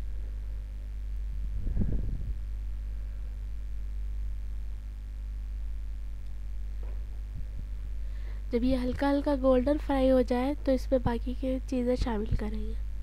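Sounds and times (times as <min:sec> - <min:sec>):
steady low hum: 0:00.0 - 0:13.0
low rumble: 0:01.2 - 0:03.8.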